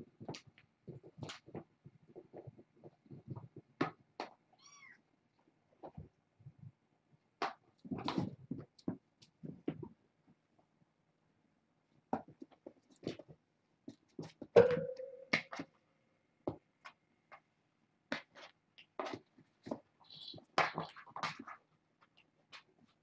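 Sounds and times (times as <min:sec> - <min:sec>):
rustles and light taps: 0:12.1 - 0:14.6.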